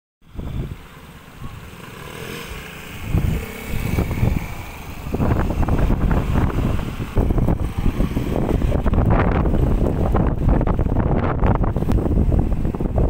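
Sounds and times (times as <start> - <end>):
scooters riding past: 0.3 - 10.6.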